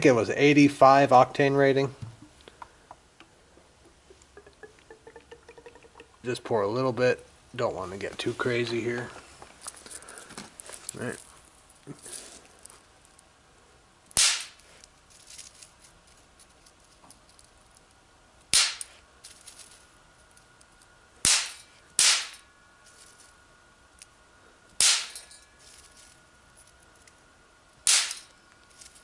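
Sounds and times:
snap-pops cracking in metal pan: 14.1 - 14.6, 18.5 - 18.9, 21.2 - 22.4, 27.9 - 28.3.

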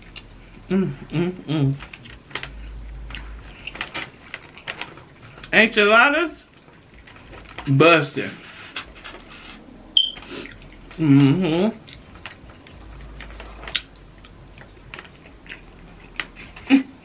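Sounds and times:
chewing and wet mouth noises: 1.8 - 5.6, 8.7 - 17.0.

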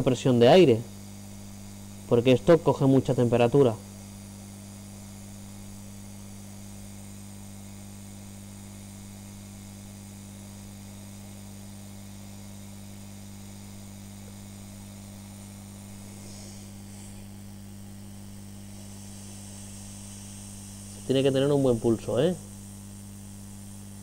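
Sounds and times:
hot-air station electrical hum: 0.0 - 24.0
air hissing: 15.6 - 22.8.

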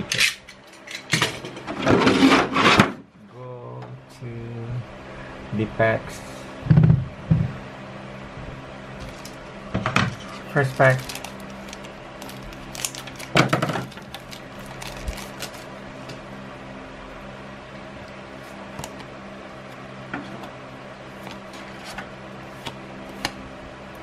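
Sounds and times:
low steady hum: 0.0 - 24.0
cards rustling and ticking: 9.0 - 9.5, 10.1 - 16.2
foil pack torn open: 10.2 - 15.7.

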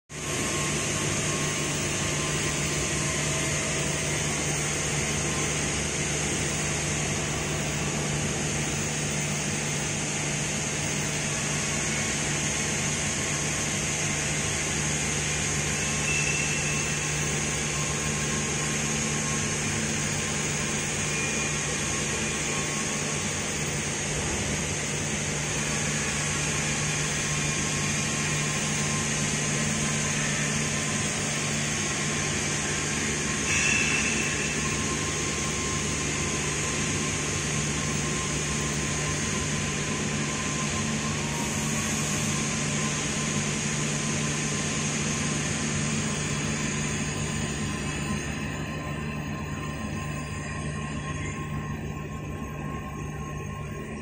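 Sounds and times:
machine shop machinery humming: 0.1 - 54.0.

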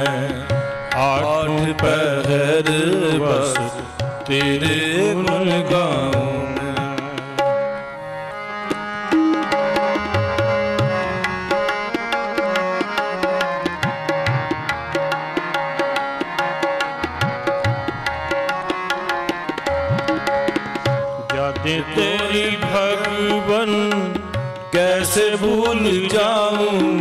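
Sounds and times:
tabla playing quick beat: 0.0 - 7.8, 8.7 - 27.0
held melody notes: 6.6 - 21.5.

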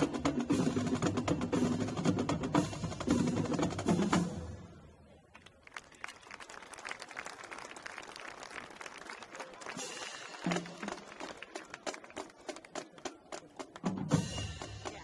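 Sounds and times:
marching drumline playing: 0.0 - 4.7, 9.7 - 15.0
faint crowd noise: 0.0 - 15.0.

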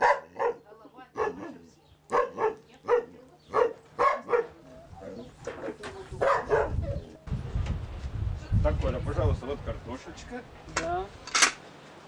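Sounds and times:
dog barking: 0.0 - 0.6, 1.2 - 4.6, 6.2 - 7.0.

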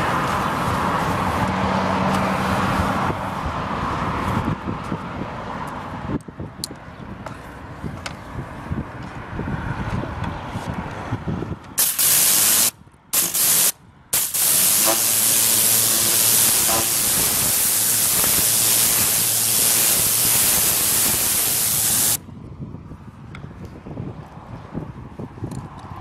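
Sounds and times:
pressure washer spraying metal: 11.8 - 22.2.

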